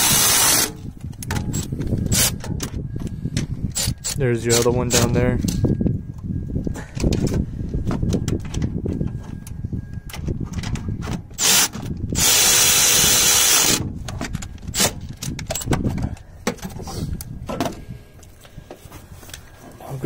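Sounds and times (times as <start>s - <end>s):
power drill driving bolt: 0.0s - 0.8s, 11.4s - 13.9s
tools clicking and knocking: 1.0s - 2.8s, 13.8s - 16.8s.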